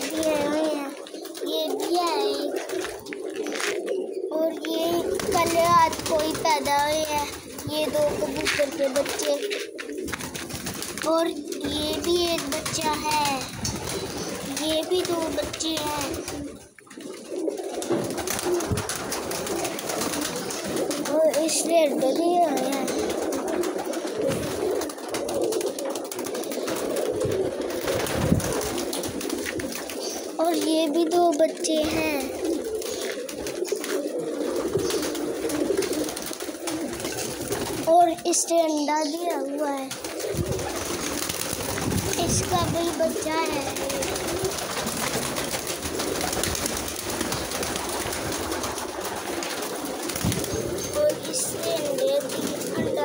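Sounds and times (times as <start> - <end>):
pigeons cooing: 0.0 - 53.0
rustling scuffling noise: 4.7 - 11.1.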